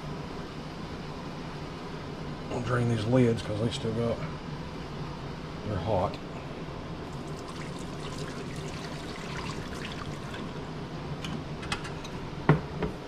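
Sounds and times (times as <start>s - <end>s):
hot water pouring into a sink: 7.1s - 10.6s.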